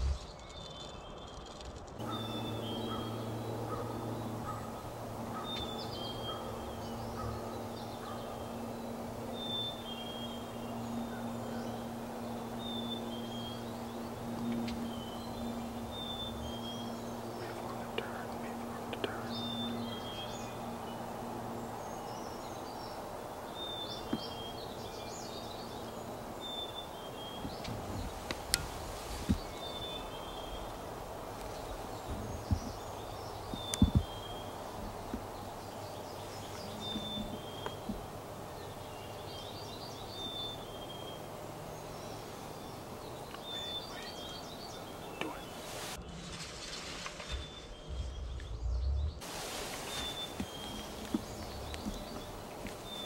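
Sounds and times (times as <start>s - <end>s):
songbird chirping: 0.0s - 53.0s
steady background hiss: 2.0s - 53.0s
sharp taps: 33.5s - 34.1s.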